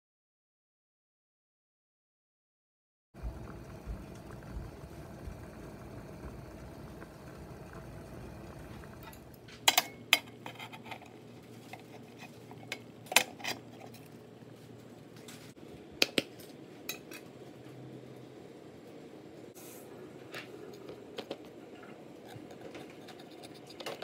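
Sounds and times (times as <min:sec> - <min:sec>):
low steady hum: 0:03.2 - 0:24.0
metal tin clanking against pot: 0:11.7 - 0:14.0.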